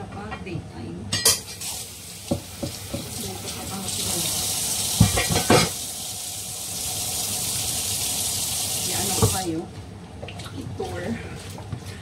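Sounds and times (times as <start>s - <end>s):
dishes clinking: 1.1s - 1.6s, 5.0s - 5.8s
tap water running into sink: 1.6s - 9.6s
loud knocks: 2.3s - 3.2s.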